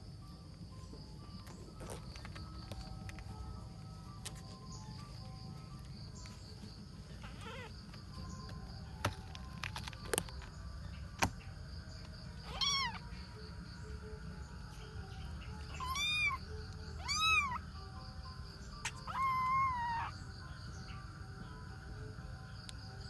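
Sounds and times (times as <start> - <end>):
kitten meowing: 7.4 - 7.7, 12.4 - 13.0, 15.7 - 16.4, 17.0 - 17.6, 18.8 - 20.2.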